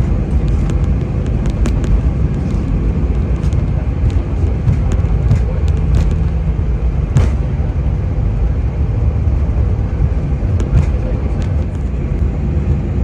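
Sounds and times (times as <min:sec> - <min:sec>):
engine and wheel rumble: 0:00.0 - 0:13.0
sharp knocks: 0:03.4 - 0:06.4, 0:07.1 - 0:07.6.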